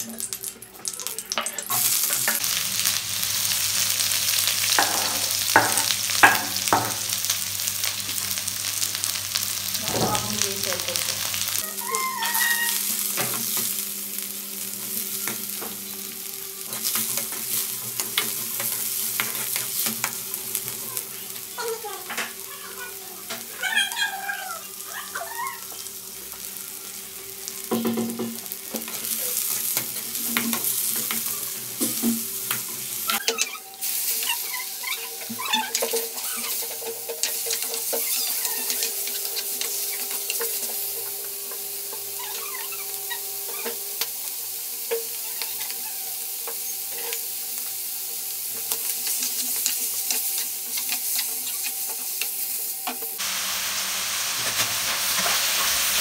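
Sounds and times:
food sizzling in a wok: 0.0 - 56.0
spatula scraping the pan: 48.6 - 52.0.

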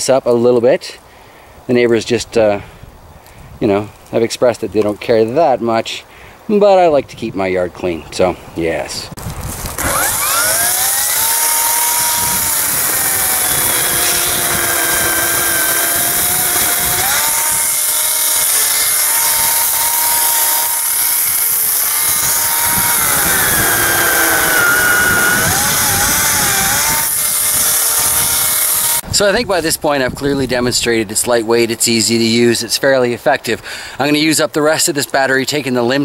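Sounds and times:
electric chainsaw whine: 9.6 - 29.0.

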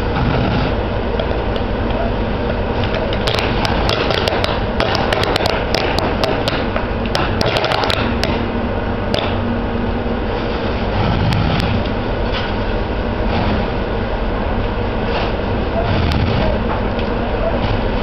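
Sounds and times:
fire engine pump droning: 0.0 - 18.0
sharp clicks and pops: 2.8 - 8.4.

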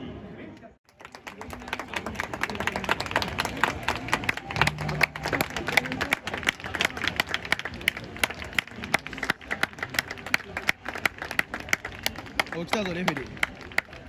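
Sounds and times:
crowd clapping: 0.9 - 14.0
crowd murmur: 1.3 - 14.0.

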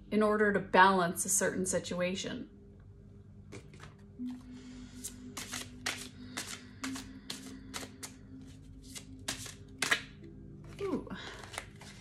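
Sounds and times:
faint background music: 0.0 - 12.0
cards being shuffled: 3.5 - 12.0.

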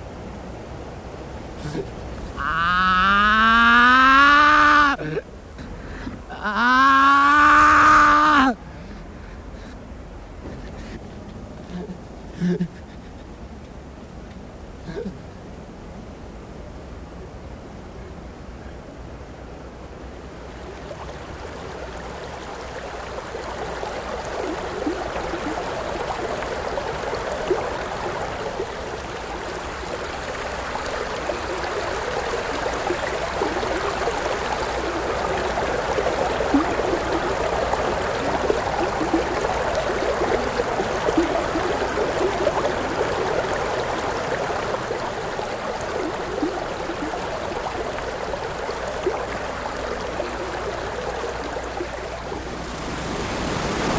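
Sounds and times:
river rushing over stones: 20.3 - 53.9.

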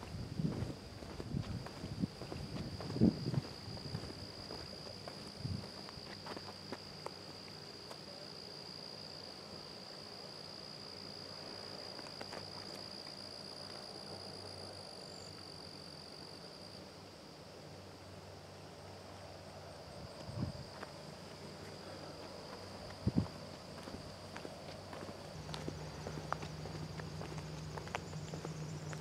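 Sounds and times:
insects trilling: 0.0 - 29.0
footstep taps on path: 22.5 - 29.0.

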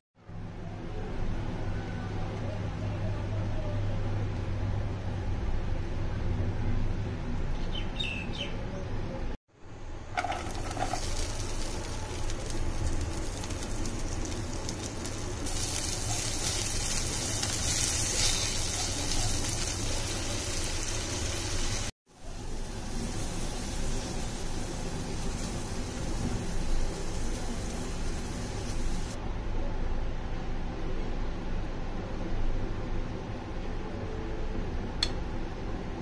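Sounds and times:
beans sizzling in oil: 10.1 - 29.2.

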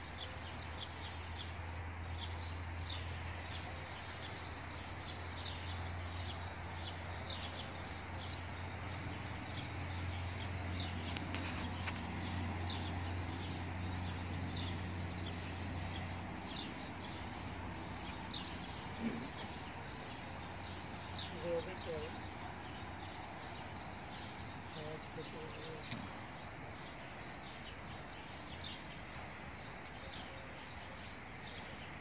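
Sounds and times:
small birds chirping: 0.0 - 32.0
steady low hum: 0.0 - 32.0.

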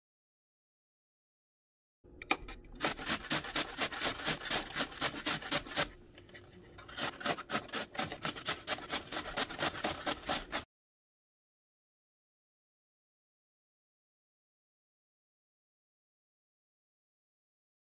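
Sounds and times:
radish rasping on grater: 2.8 - 10.7.

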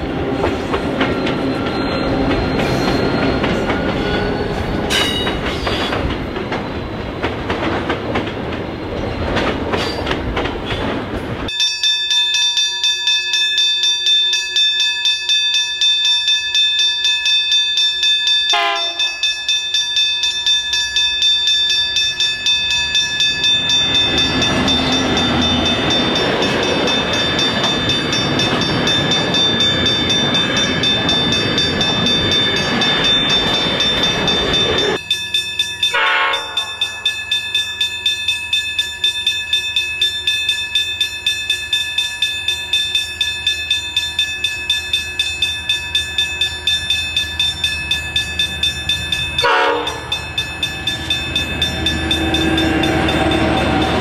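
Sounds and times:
distant diesel locomotive approaching: 0.0 - 11.5, 18.5 - 54.0
freight train wheels rumbling on rails: 0.0 - 11.6, 16.2 - 54.0
train horn blasts: 18.5 - 19.2, 35.9 - 36.8, 49.4 - 50.1.

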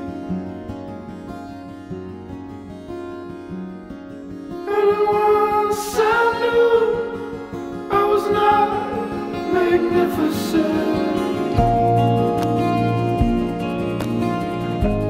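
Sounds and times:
person singing: 4.6 - 12.3
instrumental accompaniment: 8.9 - 15.0.

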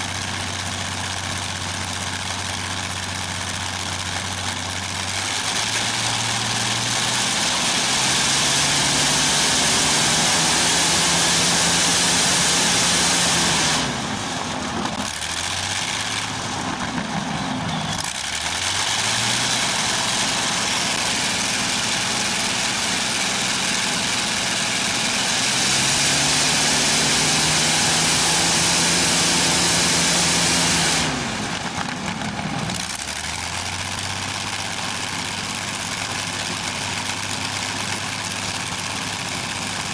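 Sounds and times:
aircraft piston engine throttling: 12.2 - 39.9.

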